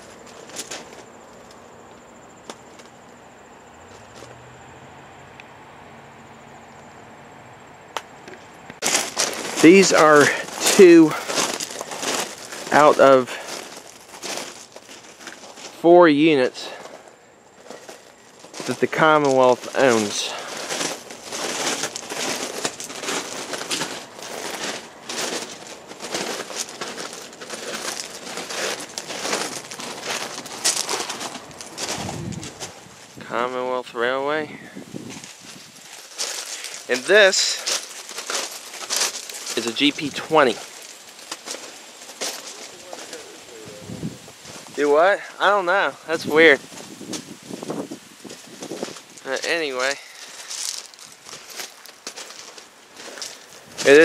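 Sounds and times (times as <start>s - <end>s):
footsteps crunching on gravel: 0.0s - 4.4s, 8.3s - 33.7s, 34.4s - 54.0s
insects trilling: 0.0s - 54.0s.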